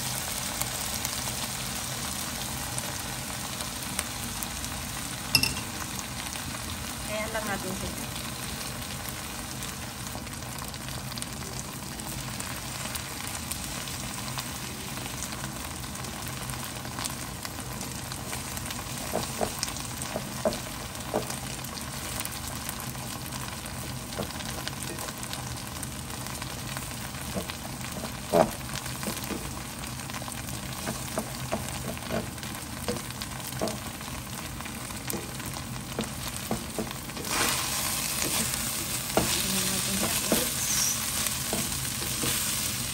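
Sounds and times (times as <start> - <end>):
egg sizzling in oil: 8.2 - 42.9
spatula scraping pan: 36.4 - 42.7.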